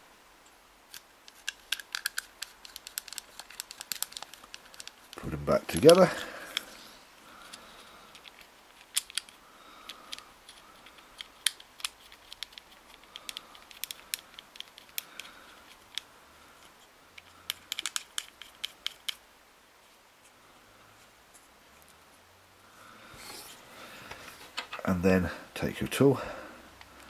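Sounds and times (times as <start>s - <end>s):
fingers clicking reel parts: 0.9s - 6.7s, 7.5s - 19.2s.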